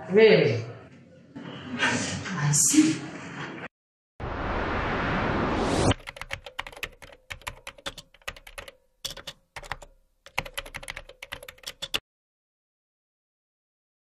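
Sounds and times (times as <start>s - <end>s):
rising rush of noise: 4.2s - 6.0s
keyboard typing clicks: 6.0s - 12.0s.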